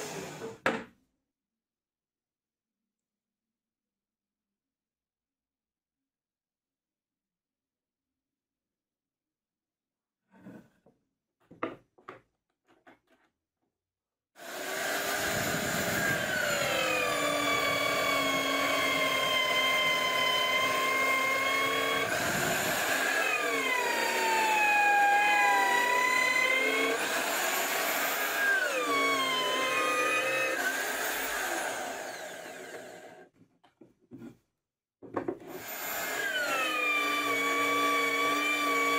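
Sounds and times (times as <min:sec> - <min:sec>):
router whining into wood: 0:00.0 - 0:00.7, 0:14.4 - 0:33.3, 0:35.2 - 0:38.9.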